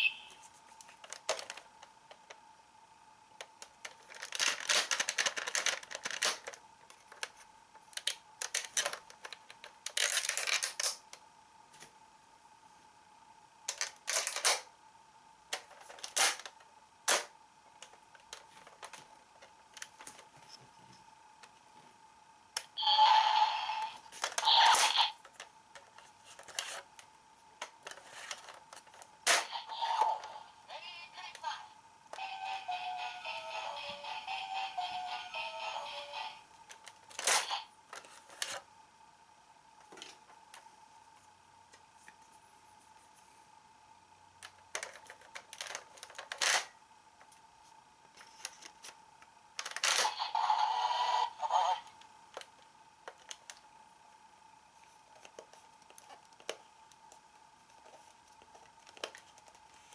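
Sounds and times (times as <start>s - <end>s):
electronic toy sound effects: 0.0s - 0.4s, 22.8s - 25.2s, 29.4s - 36.4s, 50.0s - 51.9s
card scraping on plastic: 25.8s - 26.9s.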